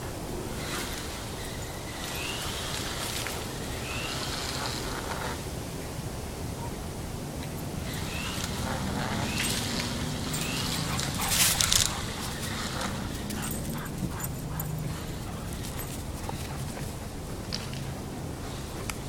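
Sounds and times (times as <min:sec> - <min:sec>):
dogs whining and yipping: 0:07.8 - 0:17.9.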